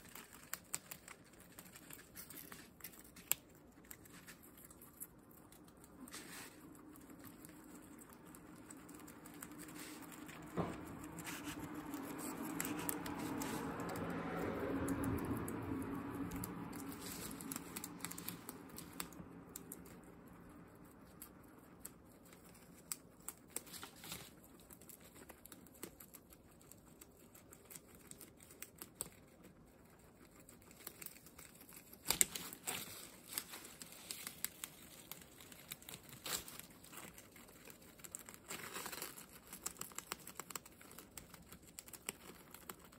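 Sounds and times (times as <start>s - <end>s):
low hum: 0.0s - 22.7s
guinea pigs chewing leaves: 0.0s - 42.9s
leaves rustling and crinkling: 16.3s - 19.1s, 30.5s - 42.8s.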